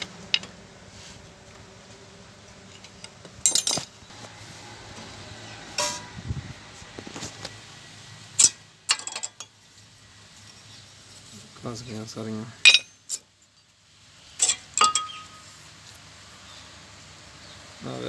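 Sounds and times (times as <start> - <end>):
metal clinks and clatters: 3.4 - 3.9, 14.4 - 15.4.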